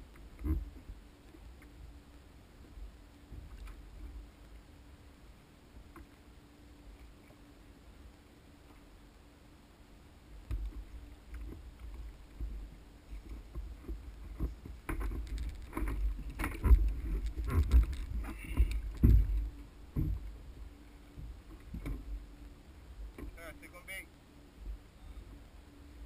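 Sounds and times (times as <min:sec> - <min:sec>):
heavy thumps on plastic kayak: 0:13.2 - 0:20.3.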